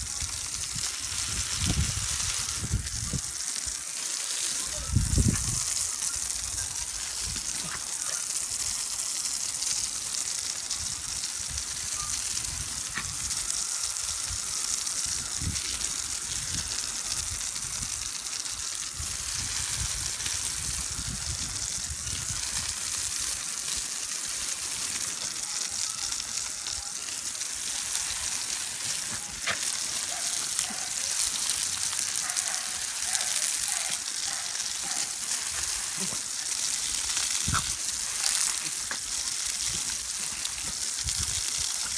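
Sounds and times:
hose spraying water onto grass: 0.0 - 41.9.

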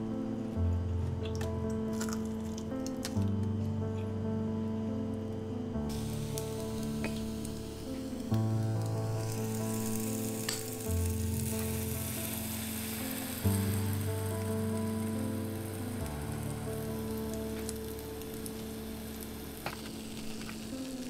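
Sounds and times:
background music: 0.0 - 21.0
dough sizzling in waffle maker: 5.9 - 21.0.

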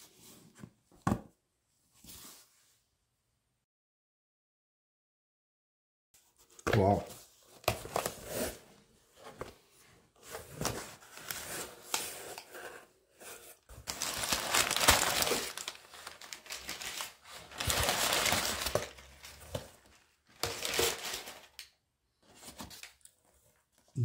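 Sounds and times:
paper crinkling and rustling: 9.2 - 23.8.

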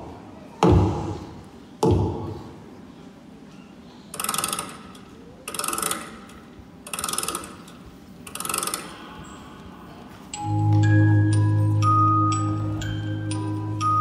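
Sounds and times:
clockwork winding ratchet: 5.5 - 6.2, 6.9 - 7.7, 8.3 - 8.9
music-box-like music with bass: 10.4 - 14.0.

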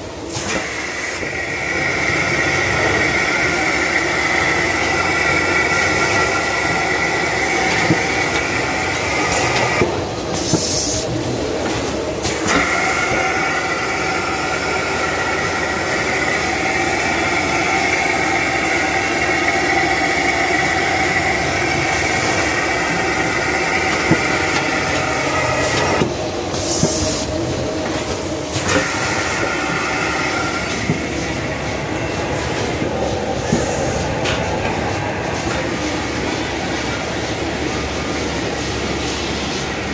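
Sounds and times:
packing machine whirring: 0.0 - 38.6.

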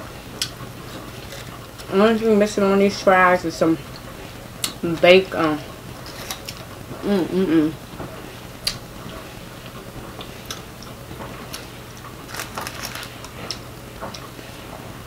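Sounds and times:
person humming: 7.0 - 7.8.

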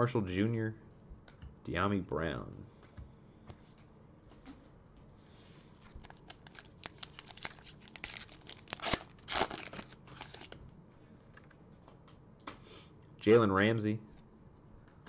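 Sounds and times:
foil wrapper crinkling and tearing: 5.9 - 10.6.

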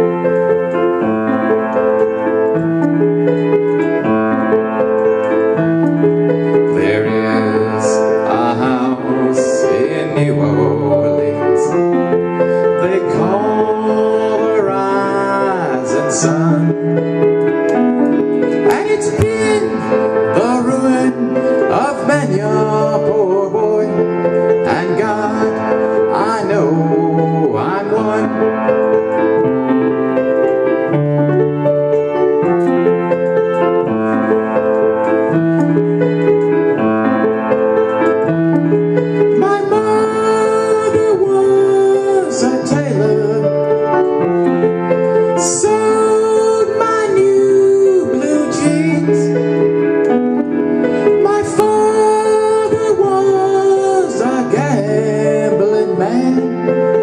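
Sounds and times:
grand piano chords: 0.0 - 57.0
man singing: 6.6 - 17.2, 18.3 - 29.1, 39.2 - 44.2, 45.0 - 49.7, 50.8 - 57.0.

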